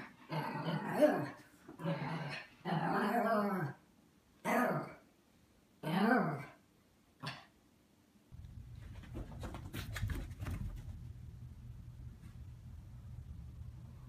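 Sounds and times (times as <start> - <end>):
small dog growling and barking: 0.0 - 3.8, 4.4 - 5.0, 5.8 - 6.6.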